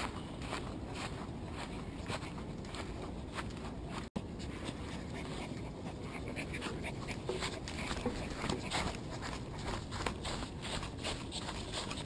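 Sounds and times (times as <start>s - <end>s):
puppy panting: 4.4s - 12.0s.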